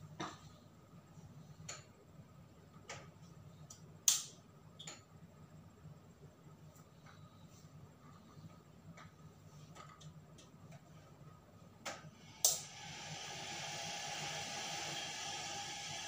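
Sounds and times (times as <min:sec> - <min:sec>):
kettle hissing: 0:12.1 - 0:16.0.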